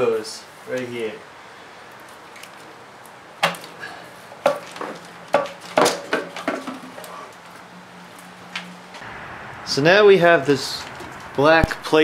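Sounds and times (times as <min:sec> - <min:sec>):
plastic knocks and clatters: 0:04.4 - 0:07.0.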